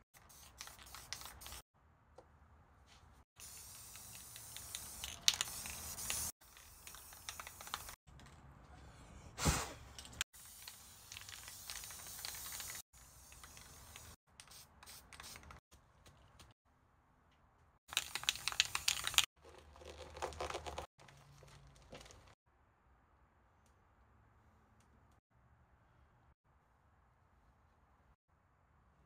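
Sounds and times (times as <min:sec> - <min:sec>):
spray paint can hissing: 0:00.2 - 0:01.6, 0:03.4 - 0:08.0, 0:10.4 - 0:15.6, 0:17.9 - 0:19.3.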